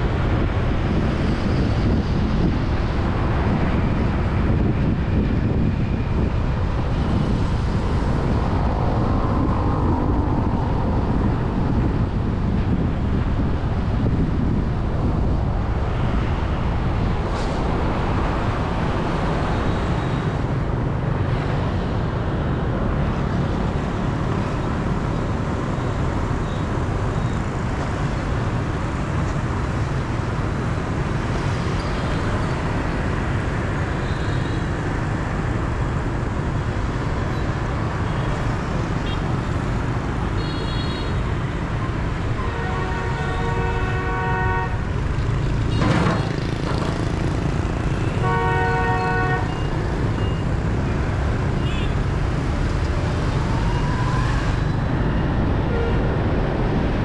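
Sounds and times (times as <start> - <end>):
road traffic rumble: 0.0 - 57.0
vehicle horn beeping: 40.4 - 41.2, 48.0 - 50.4.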